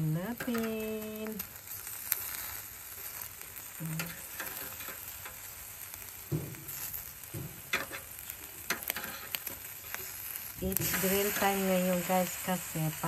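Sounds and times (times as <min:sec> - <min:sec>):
meat sizzling on grill: 0:00.0 - 0:13.0
metal tongs clicking on grill: 0:00.3 - 0:00.8, 0:03.9 - 0:05.4, 0:07.5 - 0:10.1, 0:10.7 - 0:12.1.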